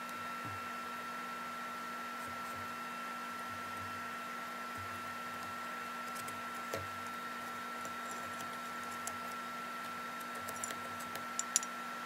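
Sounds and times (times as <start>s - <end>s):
faint steady hum: 0.0s - 12.0s
small metallic clicks and taps: 10.2s - 11.7s.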